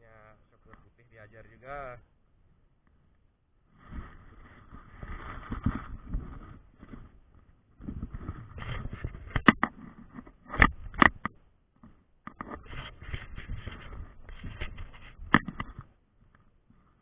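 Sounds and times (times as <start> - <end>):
sharp clicks and knocks: 7.8 - 16.5.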